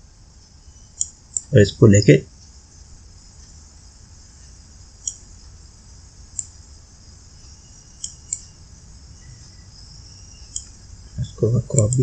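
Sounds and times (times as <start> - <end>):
high-pitched hiss: 0.0 - 12.0
computer mouse clicks: 1.0 - 1.5, 5.0 - 5.3, 8.0 - 8.5, 10.5 - 10.8, 11.7 - 12.0.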